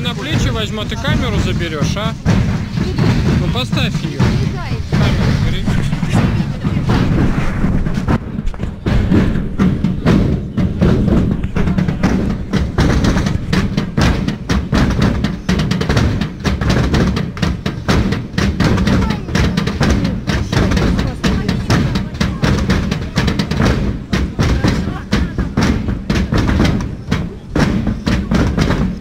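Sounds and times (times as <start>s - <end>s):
voices: 0.0s - 7.4s, 9.6s - 14.1s, 18.6s - 29.0s
percussion-led music with drums: 0.0s - 29.0s.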